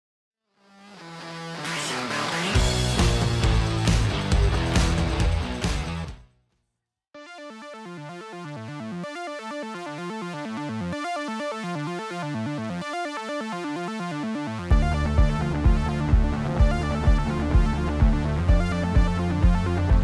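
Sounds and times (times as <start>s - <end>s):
full band music: 2.6s - 6.1s
fast electronic arpeggio: 7.2s - 20.0s.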